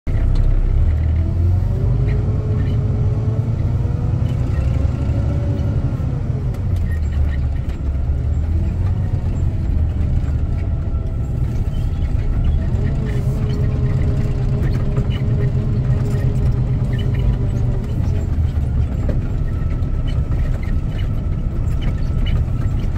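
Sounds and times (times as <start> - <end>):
engine whine: 0.1 - 22.9
truck diesel engine rumbling: 0.1 - 22.9
cab clicks and rattles: 6.4 - 22.9.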